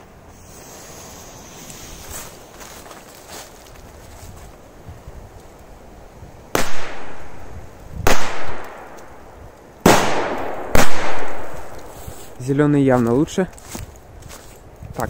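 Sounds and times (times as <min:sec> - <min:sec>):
firecracker bangs: 0:09.8 - 0:11.9.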